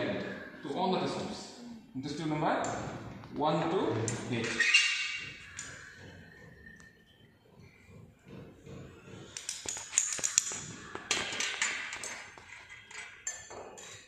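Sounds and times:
glass test tubes clinking: 9.4 - 14.0.

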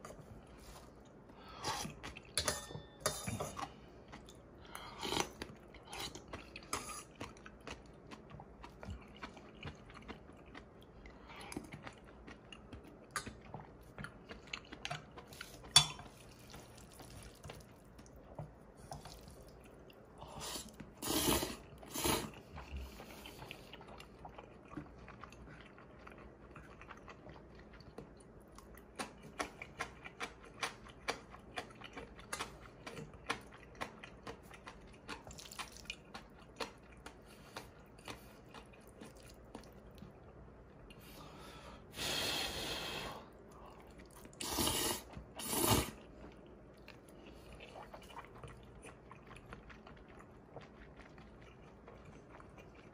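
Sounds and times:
person chewing noodles: 0.0 - 2.4, 3.5 - 52.9
loud slurps: 20.4 - 22.4, 44.4 - 46.0.

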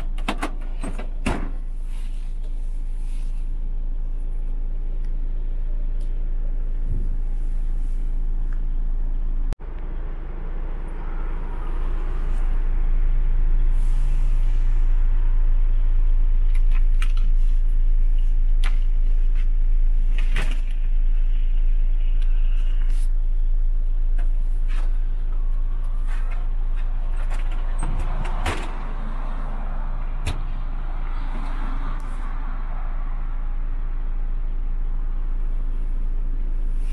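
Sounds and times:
diesel engine idling: 0.0 - 36.9.

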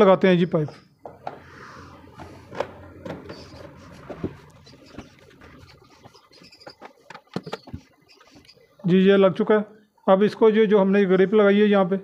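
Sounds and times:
pipe rubbing and scraping: 1.2 - 8.7.

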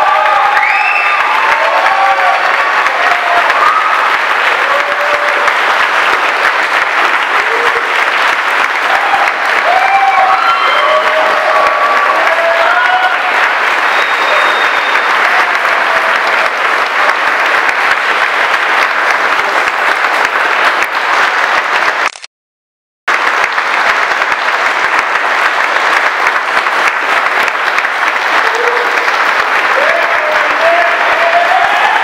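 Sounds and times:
crowd clapping: 0.0 - 22.3, 23.1 - 32.0.

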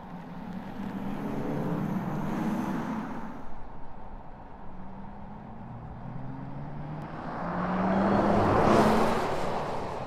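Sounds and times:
car tyre and road noise: 0.0 - 10.0.

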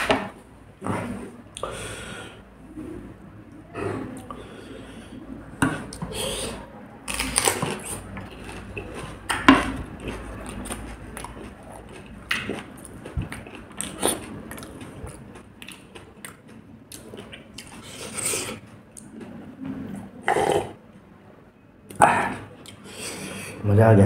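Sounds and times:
crunchy chewing: 7.0 - 19.4.

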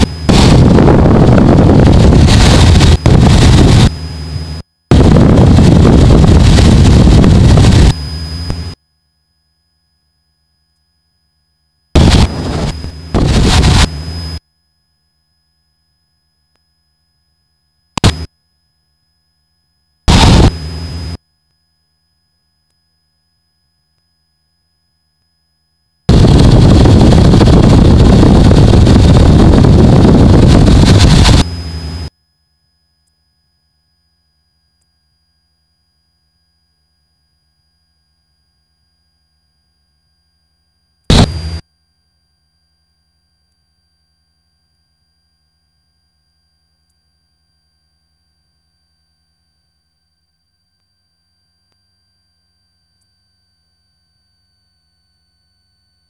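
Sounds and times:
aircraft engine and wind noise bursts: 0.0 - 8.8, 12.0 - 14.4, 20.1 - 21.2, 26.1 - 32.1, 41.1 - 41.6.

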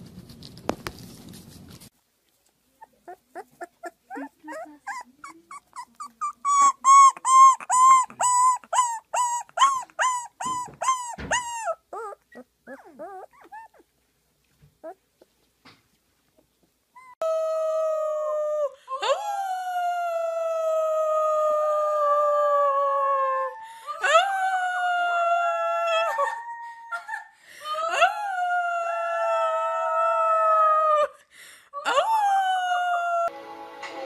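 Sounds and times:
puppy howling: 3.4 - 13.8.

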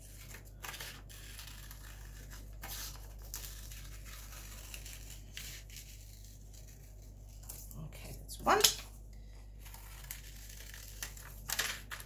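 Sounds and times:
paper rustling: 9.7 - 12.0.

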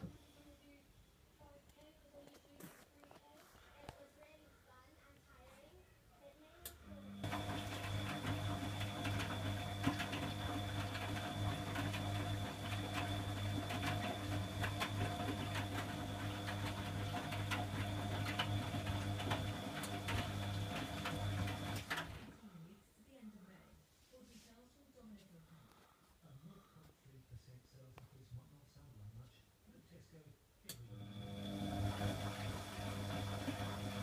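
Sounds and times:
washing machine drum hum: 7.0 - 22.4, 30.9 - 34.0
clicks and knocks of tumbling laundry: 7.2 - 22.4.

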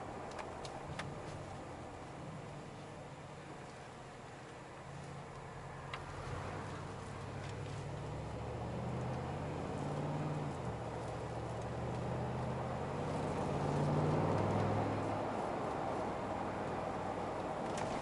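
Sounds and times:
tyre and road noise: 0.0 - 18.0
car engine revving in cabin: 5.4 - 18.0.

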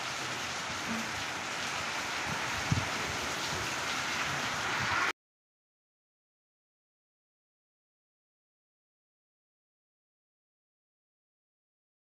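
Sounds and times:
heavy rain on standing water: 0.0 - 5.1.

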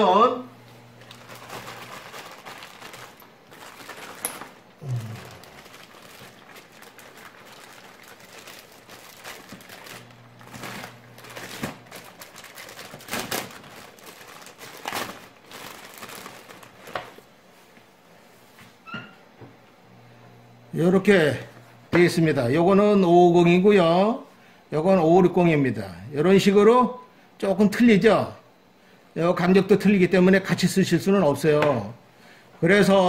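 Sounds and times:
plastic bags crinkling: 0.8 - 17.3.

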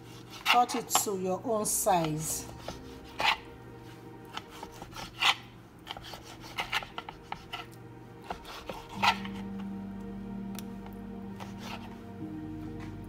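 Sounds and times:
knife slicing raw meat: 0.0 - 0.6, 2.5 - 3.5, 4.3 - 9.4.

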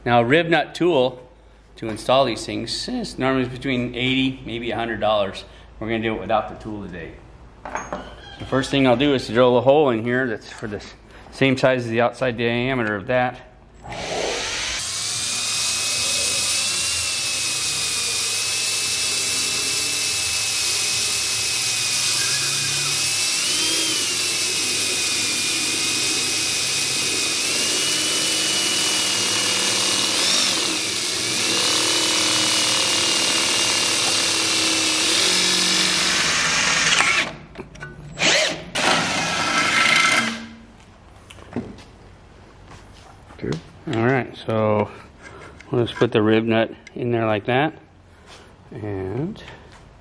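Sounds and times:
cordless drill whining: 13.8 - 37.4, 38.1 - 40.5.

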